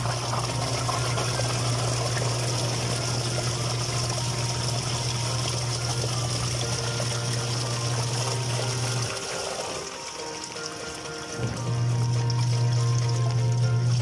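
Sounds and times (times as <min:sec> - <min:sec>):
washing machine motor humming: 0:00.0 - 0:14.0
water churning in tub: 0:00.0 - 0:14.0.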